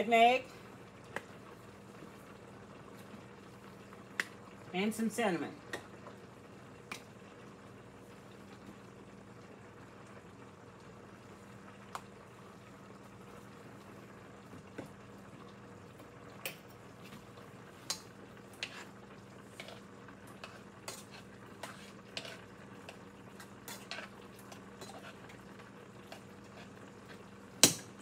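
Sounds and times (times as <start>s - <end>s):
spoon stirring in a pot: 16.4s - 28.0s.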